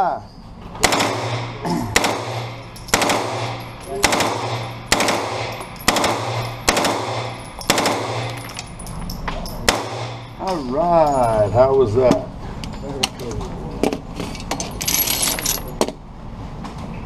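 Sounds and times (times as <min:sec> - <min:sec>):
submachine gun firing indoors: 0:00.8 - 0:08.6, 0:09.6 - 0:10.2.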